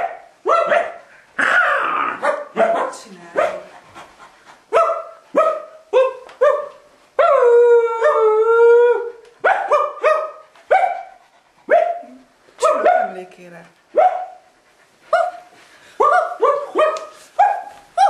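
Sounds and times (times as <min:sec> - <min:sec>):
people imitating dog barks: 0:01.4 - 0:03.0.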